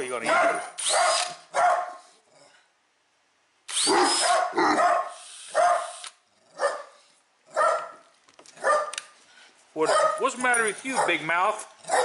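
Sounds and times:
dogs barking: 0:00.2 - 0:02.1, 0:04.0 - 0:09.0, 0:09.8 - 0:12.0
cordless drill motor whirring: 0:03.7 - 0:04.2.

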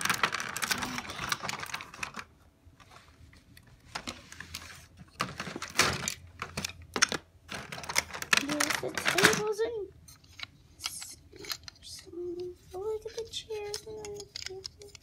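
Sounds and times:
plastic bags crinkling: 0:00.0 - 0:02.3, 0:05.2 - 0:09.6.

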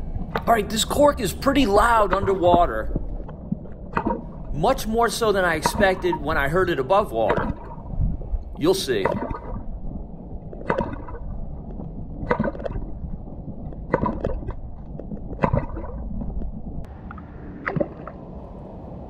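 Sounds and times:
fishing cork popping underwater: 0:01.8 - 0:04.4, 0:05.5 - 0:09.7, 0:10.4 - 0:13.0, 0:13.6 - 0:16.7.

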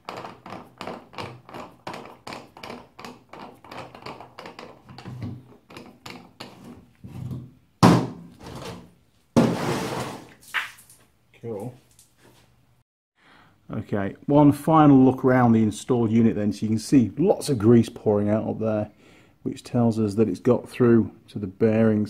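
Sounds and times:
loud thunk: 0:07.8 - 0:08.3.

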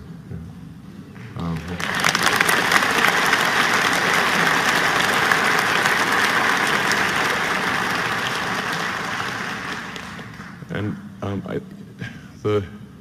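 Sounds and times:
audience applauding: 0:01.2 - 0:10.7.

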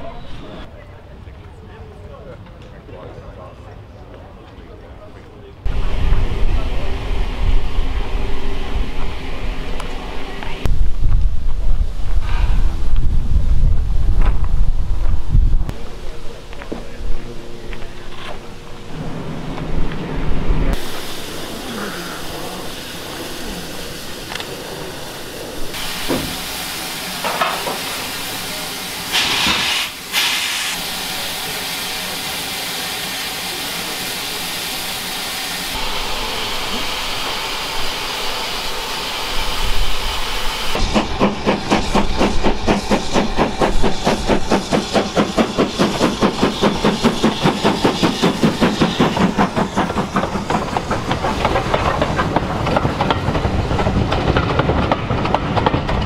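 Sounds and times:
steam train passing: 0:03.3 - 0:56.0
burst of steam: 0:12.0 - 0:12.9, 0:20.8 - 0:50.7
steam hissing: 0:20.7 - 0:54.5.

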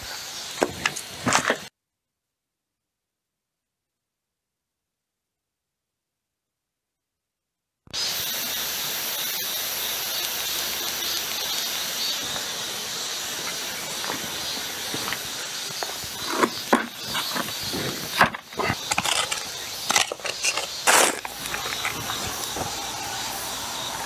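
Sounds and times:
outdoor hiss: 0:00.0 - 0:01.7, 0:07.9 - 0:24.0
plastic bucket scraping on stones: 0:13.4 - 0:22.8.

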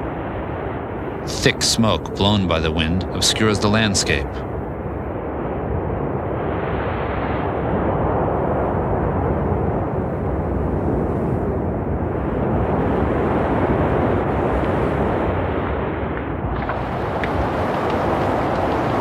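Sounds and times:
wind and flames rushing: 0:00.0 - 0:19.0
burning wood crackling and popping: 0:16.2 - 0:19.0.

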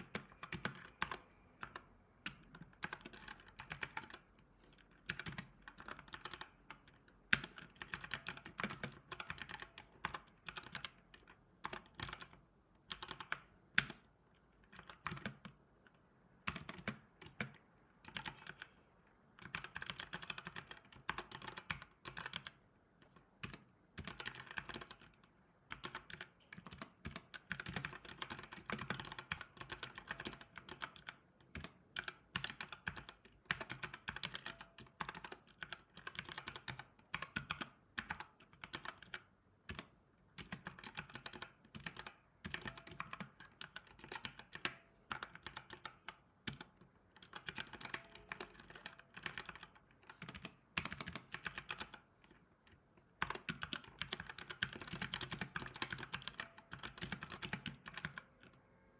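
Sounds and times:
typing on computer keyboard: 0:00.0 - 0:58.6.

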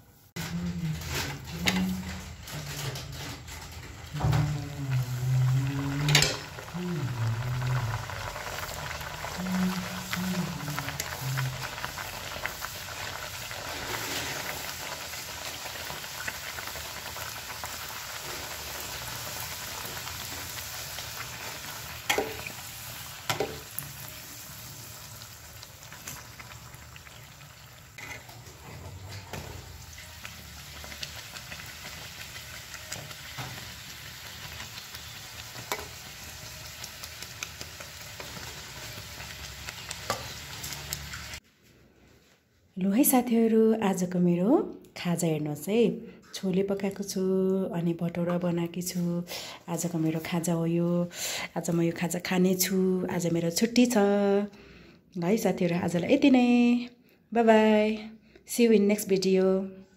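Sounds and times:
dough sizzling in hot oil: 0:05.0 - 0:41.4.

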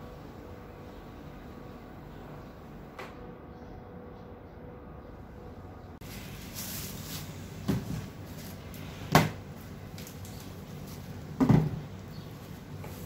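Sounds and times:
items knocking on metal table: 0:11.4 - 0:11.8.

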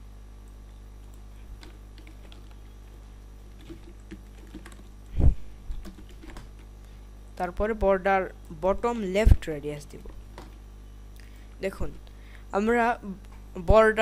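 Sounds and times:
steady low hum: 0:00.0 - 0:14.0
light keyboard keystrokes: 0:03.6 - 0:04.9, 0:05.8 - 0:06.7.

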